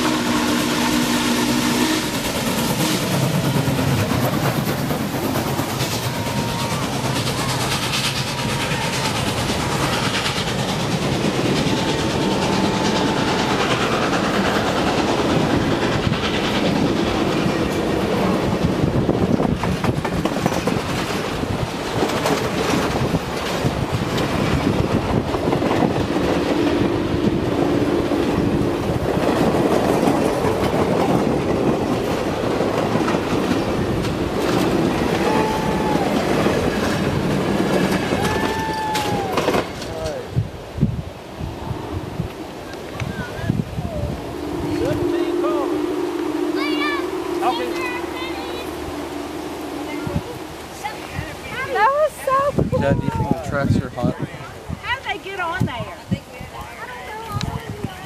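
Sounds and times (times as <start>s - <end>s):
train wheels clacking over rail joints: 0.0s - 40.6s
short high tones: 44.3s - 51.0s.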